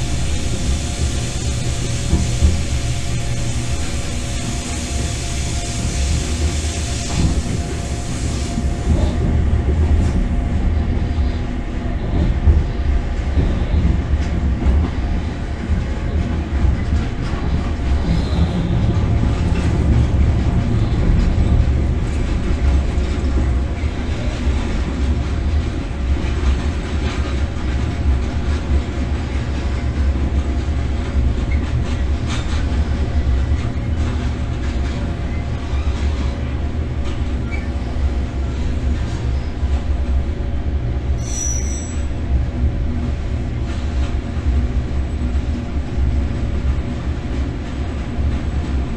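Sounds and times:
locomotive rumbling: 0.0s - 48.9s
short high squeal: 41.2s - 42.1s.

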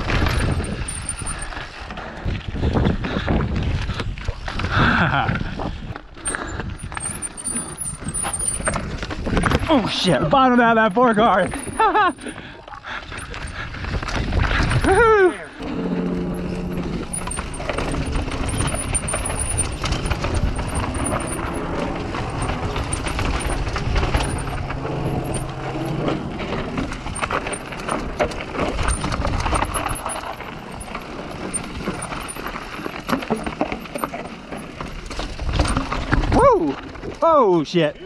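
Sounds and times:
bike knocks and rattles: 0.0s - 1.7s, 2.5s - 12.5s, 16.2s - 37.2s
wind across microphone: 0.0s - 7.3s, 13.1s - 27.5s.

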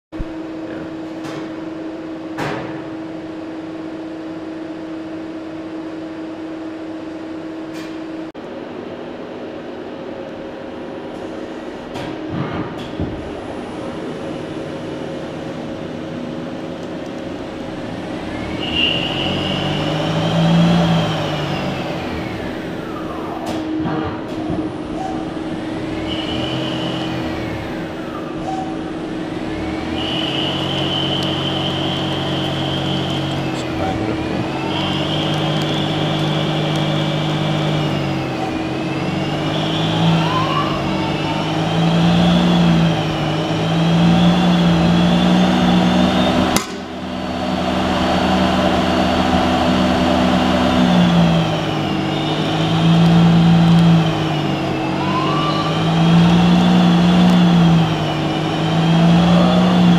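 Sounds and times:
lathe machine hum: 13.3s - 59.9s
spindle motor whine: 24.7s - 59.9s.

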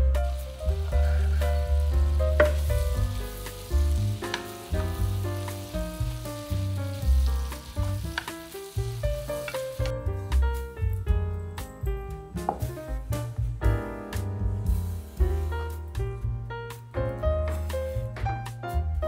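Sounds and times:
food sizzling in a pan: 0.0s - 10.0s
piano music with bass: 0.0s - 19.0s.

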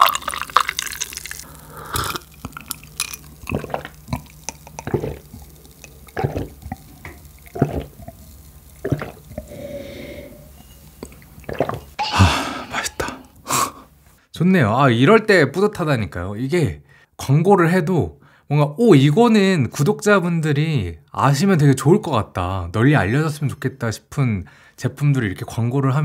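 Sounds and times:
drink pouring into glass: 0.0s - 12.8s
person gulping: 0.0s - 13.9s.

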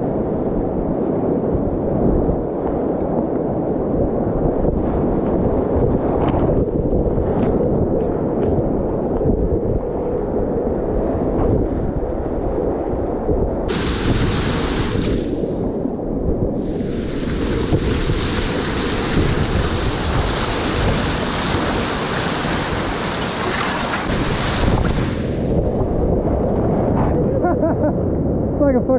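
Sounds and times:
wind buffeting microphone: 0.0s - 28.9s
whitewater rushing and splashing: 13.7s - 15.6s, 16.6s - 26.2s.

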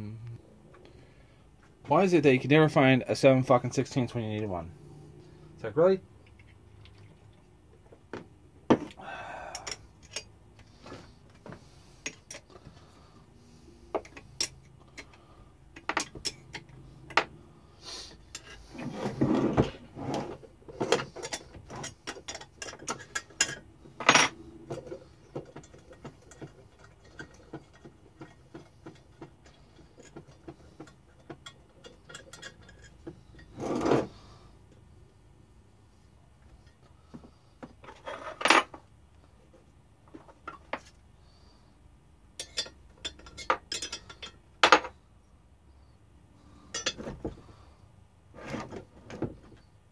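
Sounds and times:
hand tools clinking and knocking: 8.7s - 11.4s, 13.9s - 17.4s, 20.7s - 34.0s, 42.4s - 45.0s, 46.7s - 47.4s.

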